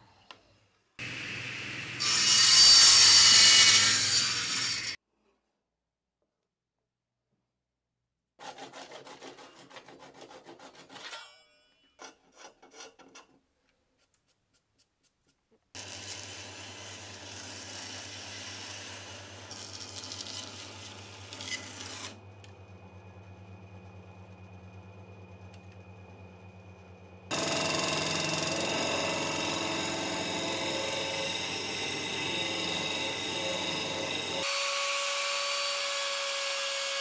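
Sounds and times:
bandsaw cutting wood: 2.0s - 5.0s, 15.8s - 22.2s, 27.3s - 37.0s
hand saw cutting wood: 8.4s - 11.3s, 12.0s - 13.4s, 15.8s - 22.2s.

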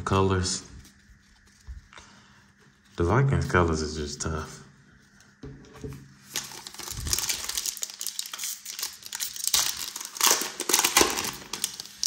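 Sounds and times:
foil wrapper crinkling: 0.0s - 3.0s, 6.2s - 12.0s.

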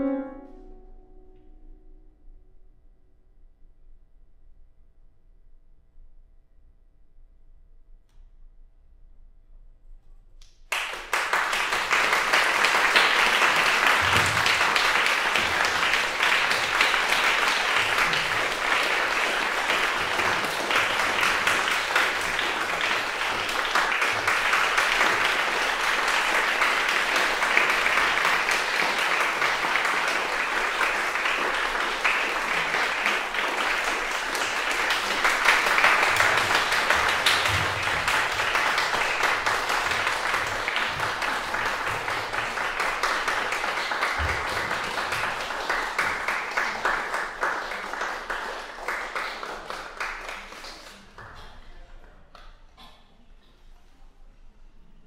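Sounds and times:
audience applause: 10.7s - 51.5s.

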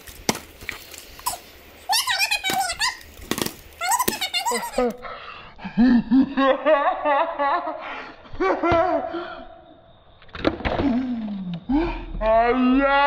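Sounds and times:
girl laughing: 3.8s - 5.0s.

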